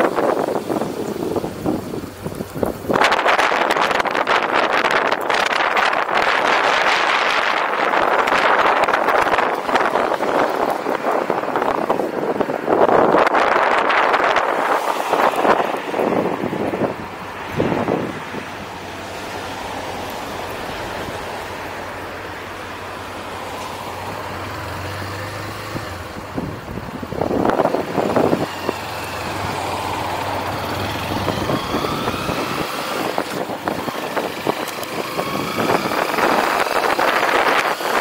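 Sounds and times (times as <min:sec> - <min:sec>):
road traffic passing: 0:00.0 - 0:38.0
wind noise on microphone: 0:00.0 - 0:38.0
motorcycle engine: 0:15.8 - 0:38.0.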